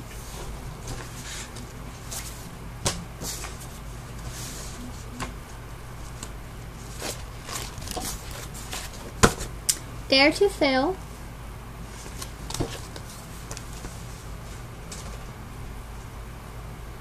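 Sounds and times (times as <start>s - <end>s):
low hum: 0.0s - 10.1s
paper rustling: 6.0s - 9.2s, 11.9s - 15.3s.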